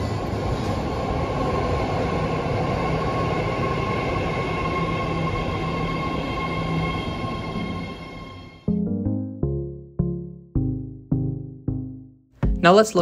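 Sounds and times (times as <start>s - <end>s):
subway train rumbling: 0.0s - 8.7s.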